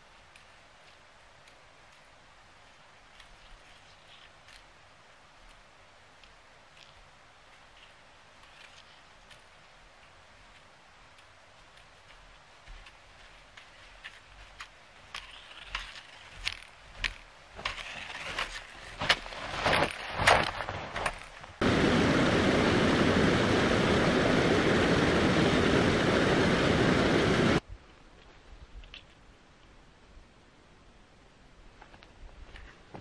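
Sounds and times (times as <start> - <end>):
trekking poles clicking: 6.2 - 21.6, 28.2 - 29.7
boots crunching in snow: 10.5 - 21.4
loud steady rushing noise: 21.6 - 27.6.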